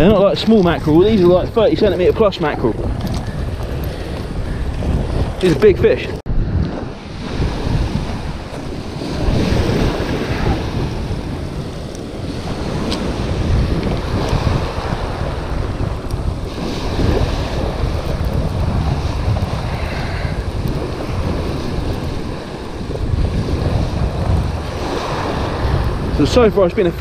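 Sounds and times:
wind buffeting microphone: 0.0s - 27.0s
waves washing over shingle: 6.9s - 27.0s.

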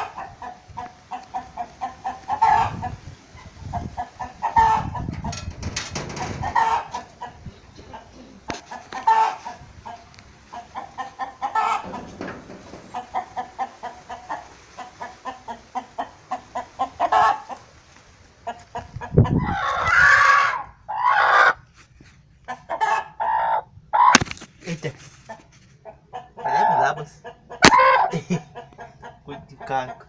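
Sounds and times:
loud chicken calls: 0.0s - 5.1s, 6.0s - 8.1s, 8.7s - 17.6s, 18.4s - 21.6s, 22.5s - 24.2s, 25.9s - 29.2s
hen clucking: 0.0s - 17.8s, 18.4s - 21.6s, 22.4s - 24.2s, 25.3s - 30.0s.

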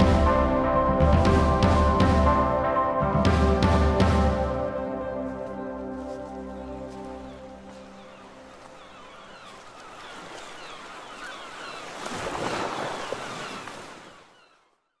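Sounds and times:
surf washing against rocks: 8.4s - 14.3s.

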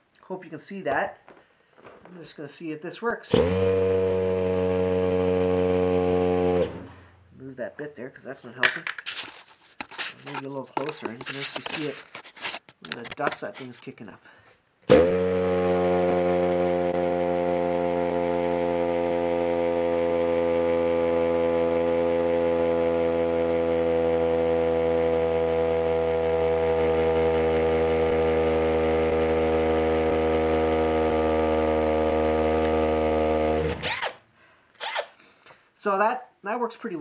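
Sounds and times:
hammer drill boring into brick: 3.3s - 7.1s, 14.9s - 34.2s, 34.8s - 35.2s.

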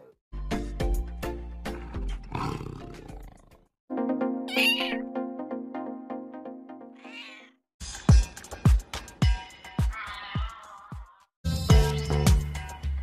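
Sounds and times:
background music: 0.4s - 3.3s, 3.9s - 7.1s, 7.8s - 13.0s
cat meowing: 4.5s - 5.0s, 7.0s - 7.6s, 9.9s - 11.2s.

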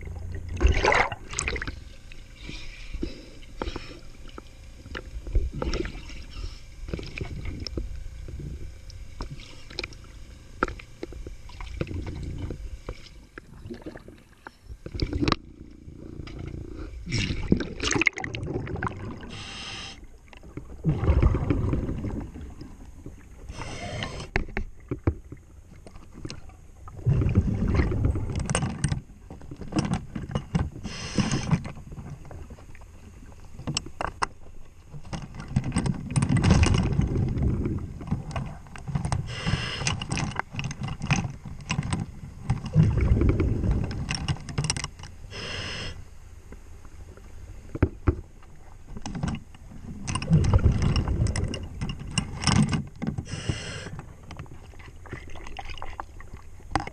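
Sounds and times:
exhaled bubbles rumbling: 0.0s - 2.2s, 4.8s - 12.8s, 13.4s - 19.5s, 20.1s - 25.6s, 26.2s - 28.6s, 36.0s - 38.6s, 42.6s - 44.2s, 49.8s - 52.4s
diver breathing through regulator: 2.4s - 4.2s, 19.2s - 20.0s, 23.5s - 24.4s, 30.8s - 31.5s, 39.2s - 40.1s, 45.3s - 46.0s, 53.2s - 54.0s.

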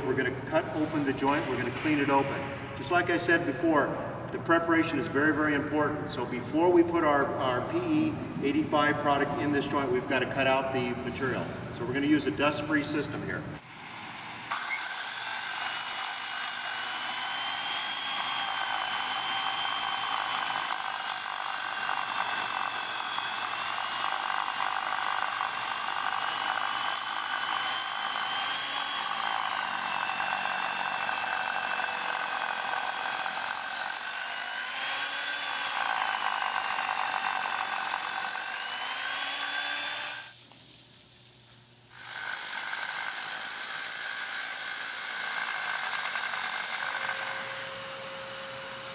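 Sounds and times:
circular saw cutting concrete: 13.6s - 40.4s, 41.9s - 48.9s.

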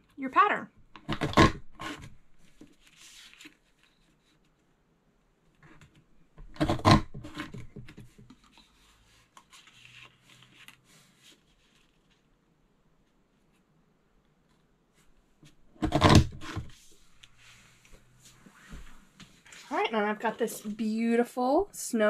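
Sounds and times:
paper sliding and rustling: 1.9s - 4.4s, 7.3s - 12.3s.

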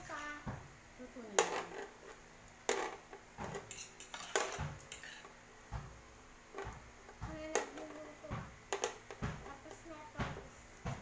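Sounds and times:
metal tongs clinking on grill plate: 3.6s - 5.3s.

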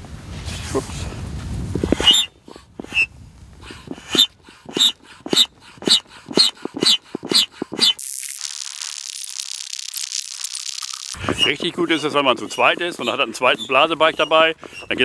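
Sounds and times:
foot pump squeaky wheeze: 1.9s - 3.1s, 3.7s - 8.0s, 11.0s - 15.0s.

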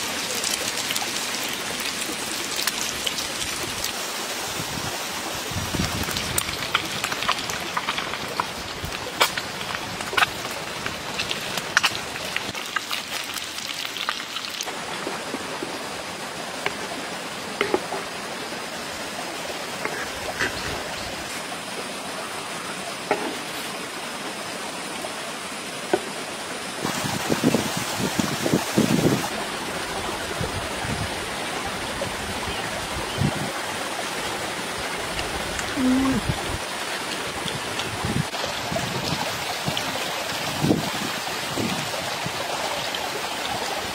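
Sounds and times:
sharp pops and crackles: 5.8s - 14.7s.

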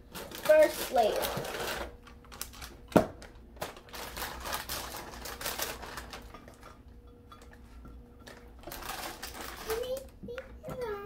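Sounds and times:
plastic bag crinkling: 0.0s - 6.8s, 8.3s - 10.2s.

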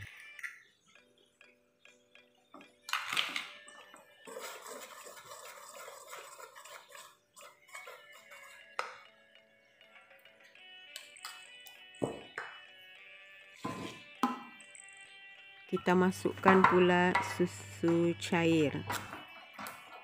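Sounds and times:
soft background music: 0.0s - 20.0s
whisk scraping in metal bowl: 4.2s - 8.8s.

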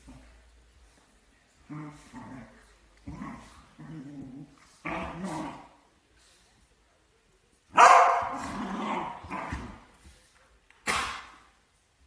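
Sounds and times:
dogs growling and barking: 1.6s - 5.8s, 8.1s - 9.9s.

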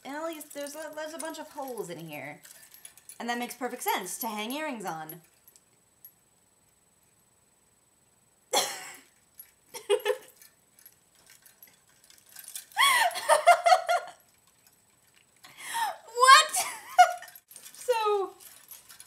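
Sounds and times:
woman laughing: 9.7s - 10.4s, 12.7s - 14.2s, 15.7s - 17.4s.

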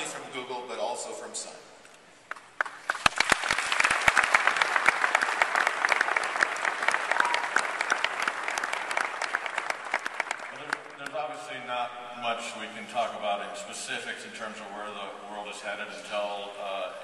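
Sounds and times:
large audience applauding: 2.3s - 11.2s
loud individual claps: 2.3s - 11.2s.

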